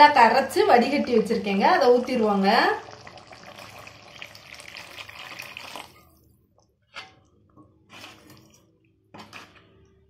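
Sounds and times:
liquid pouring into pan: 0:02.8 - 0:06.2
curry sloshing when stirred: 0:07.8 - 0:09.8.

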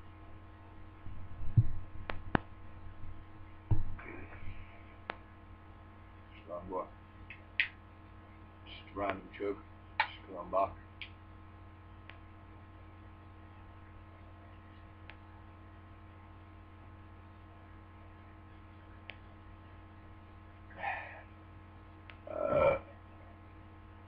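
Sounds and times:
electrical mains hum: 0:00.0 - 0:24.0
man exhaling: 0:20.7 - 0:21.3.

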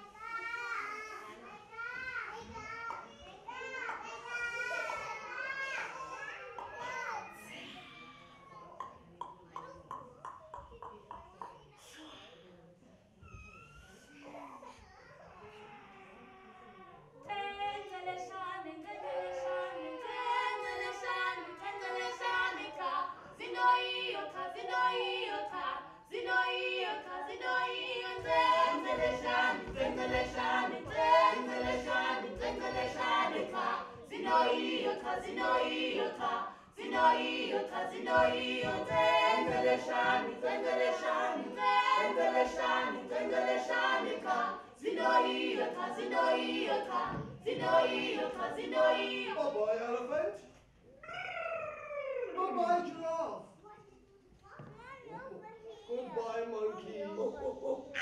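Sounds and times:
a cappella group singing: 0:17.3 - 0:49.8.

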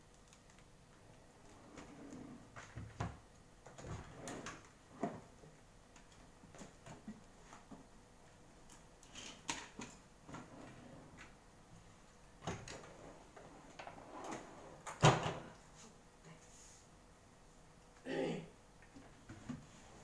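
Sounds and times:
clicks and knocks of handling things: 0:08.6 - 0:10.5.

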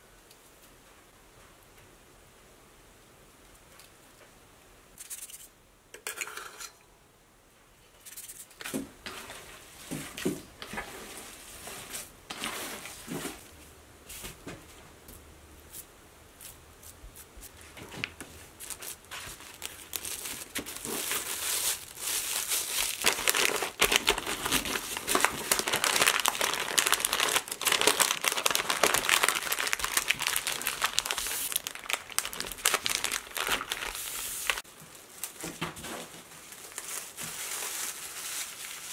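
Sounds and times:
cling wrap and paper crinkling: 0:16.4 - 0:38.9.

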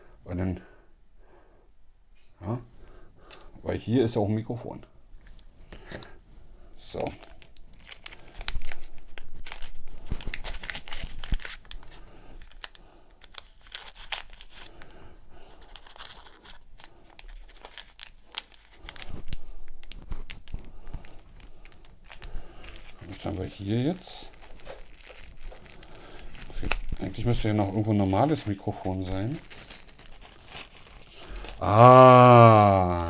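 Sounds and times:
plastic packaging crinkling: 0:06.9 - 0:32.0.

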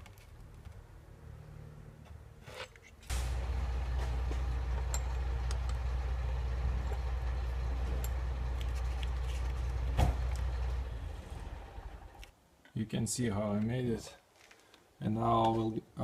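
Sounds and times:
steady low hum: 0:03.1 - 0:12.3.

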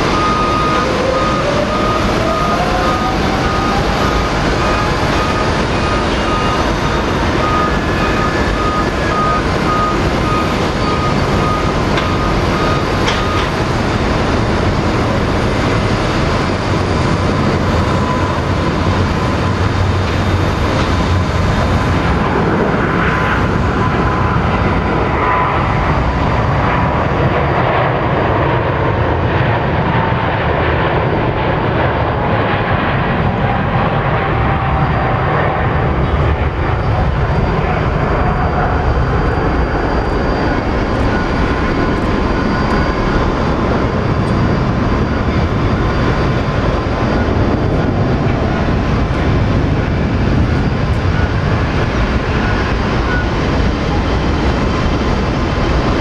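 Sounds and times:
jet engines at takeoff thrust: 0:00.0 - 0:56.0.

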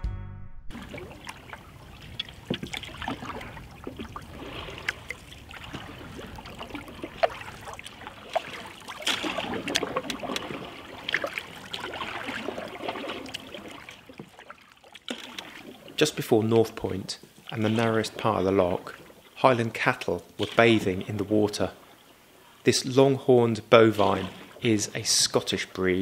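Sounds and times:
water dripping off paddle: 0:00.7 - 0:22.2, 0:23.9 - 0:25.5
canoe paddle strokes in water: 0:00.7 - 0:26.0
water lapping on hull: 0:00.7 - 0:26.0.

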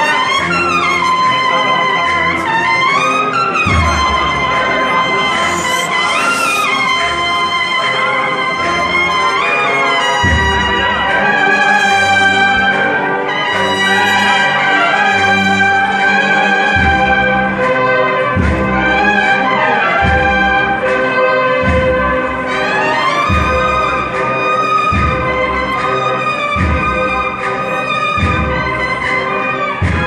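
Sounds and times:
cornet and drum band marching: 0:00.0 - 0:30.0
bass drum strokes: 0:03.6 - 0:05.8.

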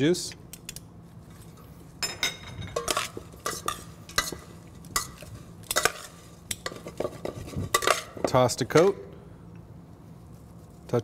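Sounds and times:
metal tongs clinking in bowl: 0:02.0 - 0:07.0.

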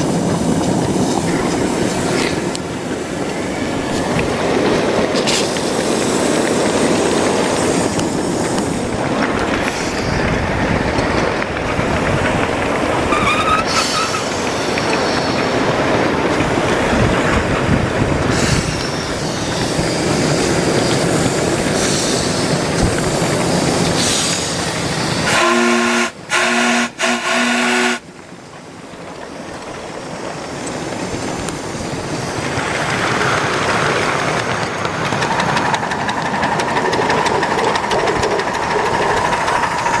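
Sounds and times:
model steam locomotive running: 0:00.0 - 0:40.0
steam whistle blasts: 0:25.2 - 0:28.0.

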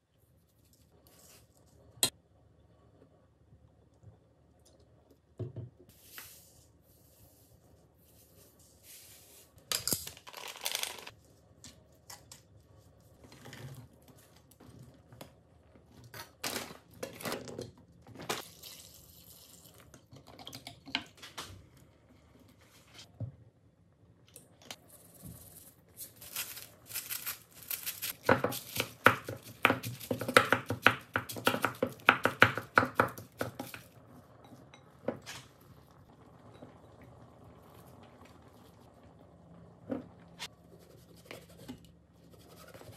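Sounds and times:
packaging rustling: 0:26.0 - 0:28.8.

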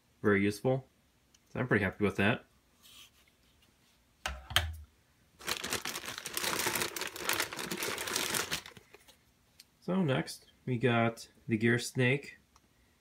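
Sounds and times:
plastic bag crinkling: 0:05.4 - 0:09.2.

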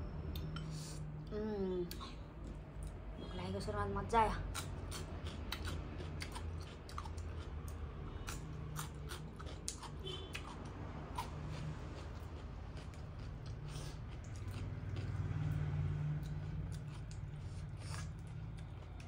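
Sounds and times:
chewing crisp radish: 0:04.5 - 0:19.0.

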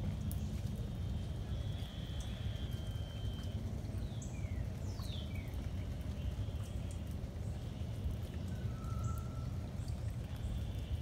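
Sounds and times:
bird calls and whistles: 0:08.5 - 0:09.6.

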